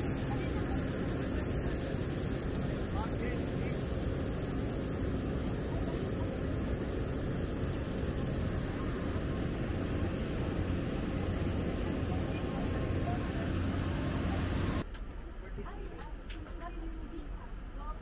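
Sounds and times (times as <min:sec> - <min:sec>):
airliner cabin engine noise: 0:00.0 - 0:14.8.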